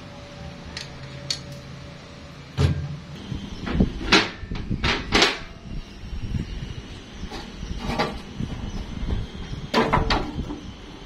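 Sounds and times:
metal clunks and knocks: 0:02.6 - 0:03.1.

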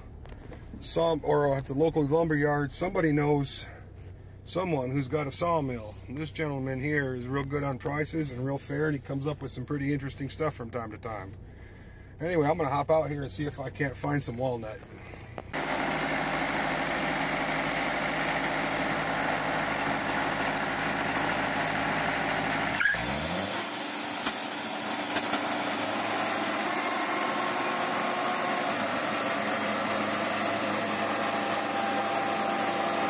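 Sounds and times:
sawmill engine running: 0:14.8 - 0:33.0.

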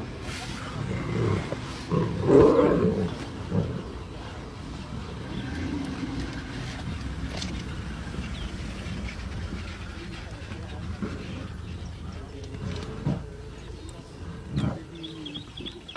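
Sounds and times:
lion snarling: 0:00.6 - 0:04.2, 0:05.1 - 0:10.0.

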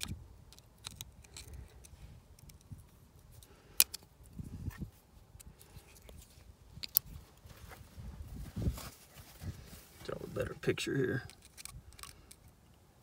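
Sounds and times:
small metal parts clicking: 0:00.0 - 0:02.8, 0:11.3 - 0:12.5.

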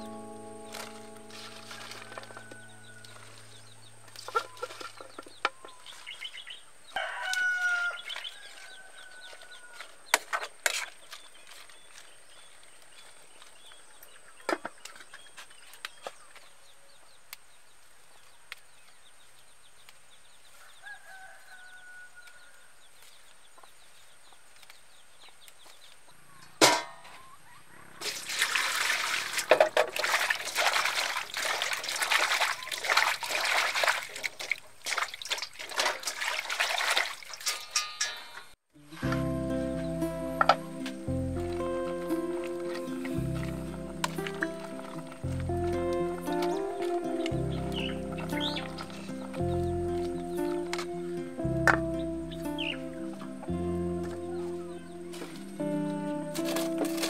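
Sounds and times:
rooster crowing: 0:01.4 - 0:03.8, 0:06.9 - 0:10.0, 0:20.6 - 0:22.7
water splashing in a basin: 0:28.0 - 0:38.1, 0:42.1 - 0:49.4.

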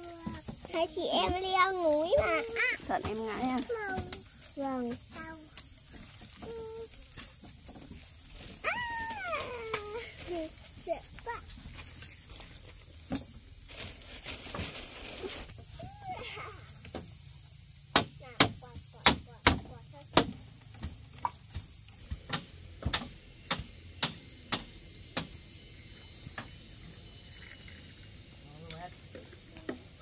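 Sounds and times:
insects chirring: 0:00.0 - 0:30.0
sharp knocks: 0:17.9 - 0:25.4.

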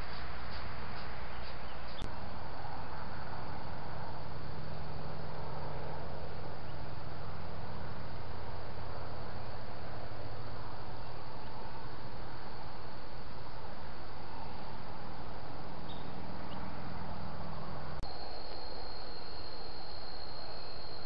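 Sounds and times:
steady hiss: 0:00.0 - 0:05.4, 0:17.5 - 0:21.0.

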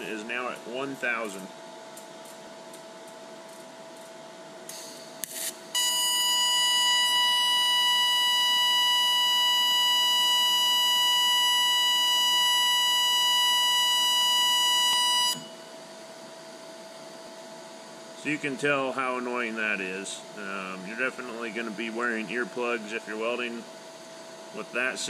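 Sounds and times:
welding arc high-pitched whine: 0:04.7 - 0:15.7.

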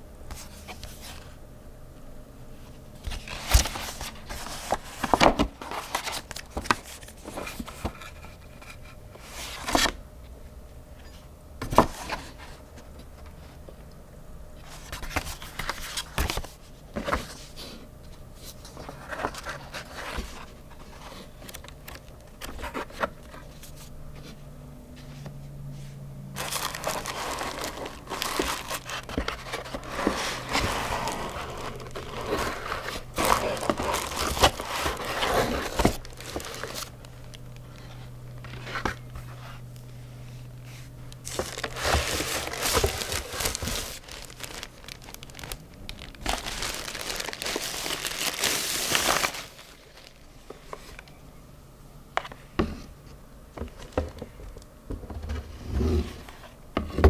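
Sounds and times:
pages turning: 0:03.0 - 0:10.0, 0:26.4 - 0:39.6, 0:41.2 - 0:51.1
paper rustling: 0:03.1 - 0:10.0, 0:26.4 - 0:39.6, 0:40.7 - 0:51.1
pulp insert scraping and crinkling: 0:26.4 - 0:39.7, 0:41.2 - 0:51.1.

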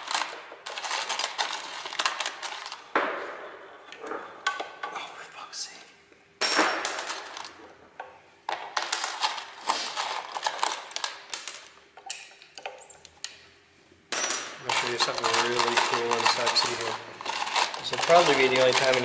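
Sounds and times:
metal tools clinking and rattling: 0:00.0 - 0:02.8, 0:14.1 - 0:19.0.

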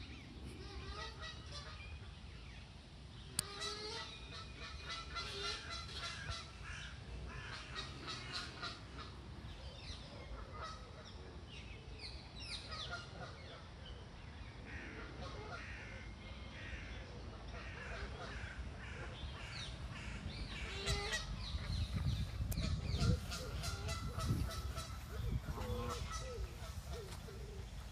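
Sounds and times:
geese honking: 0:00.6 - 0:01.8, 0:03.4 - 0:09.1, 0:14.7 - 0:16.0, 0:17.5 - 0:27.9
small birds chirping: 0:17.6 - 0:27.9.

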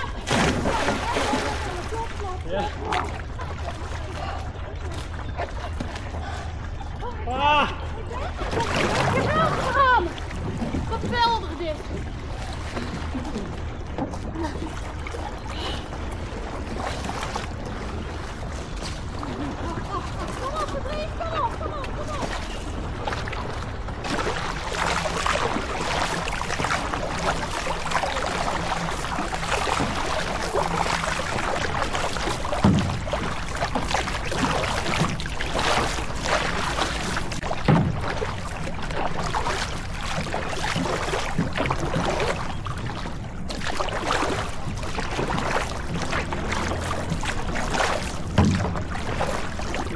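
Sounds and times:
water rushing and splashing: 0:00.0 - 0:49.9
low thumps: 0:32.4 - 0:35.2, 0:37.3 - 0:38.6, 0:48.1 - 0:49.5.

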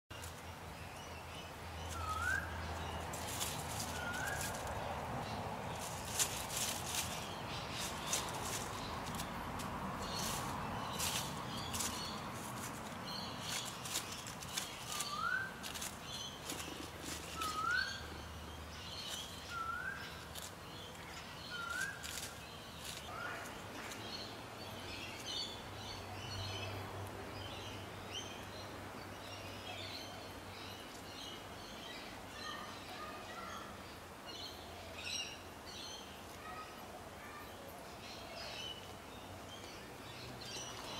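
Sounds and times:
small birds chirping: 0:00.1 - 0:40.9
dry rustling clicks: 0:05.8 - 0:17.7, 0:21.7 - 0:23.5.

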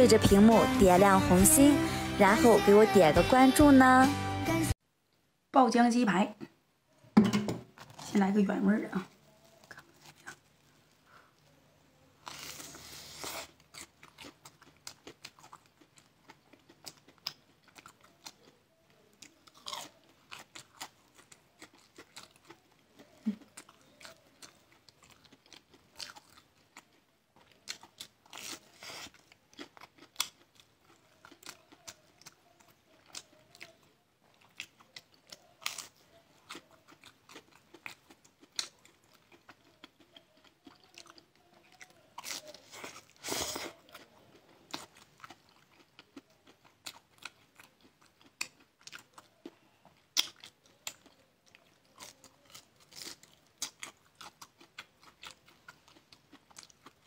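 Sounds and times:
crunching fried food: 0:07.7 - 0:08.4, 0:12.1 - 0:57.0
clicky chewing: 0:13.6 - 0:57.0.

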